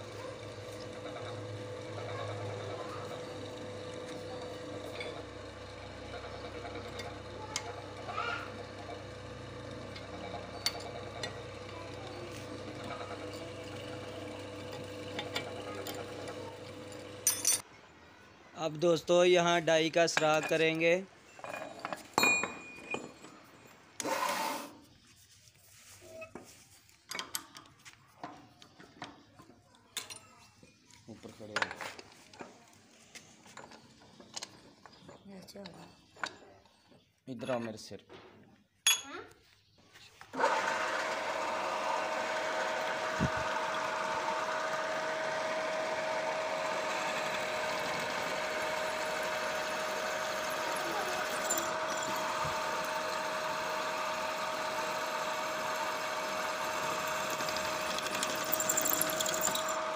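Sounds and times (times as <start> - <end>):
drill bit rasping into metal: 0.5 - 17.3, 46.8 - 59.9.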